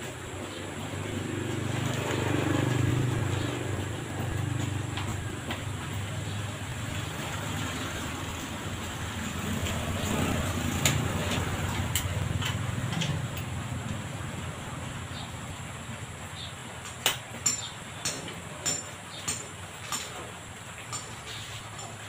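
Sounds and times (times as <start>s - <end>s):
motorcycle engine passing: 0.6s - 13.3s.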